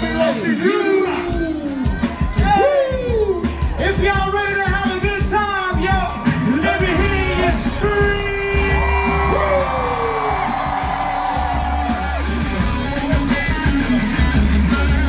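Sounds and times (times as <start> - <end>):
backing track with heavy bass: 0.0 - 15.0
crowd whooping: 0.8 - 15.0
man singing into microphone: 12.9 - 15.0.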